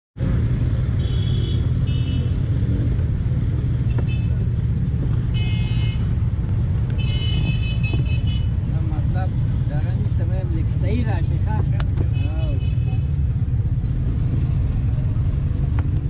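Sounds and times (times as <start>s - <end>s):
road traffic rumble: 0.2s - 16.0s.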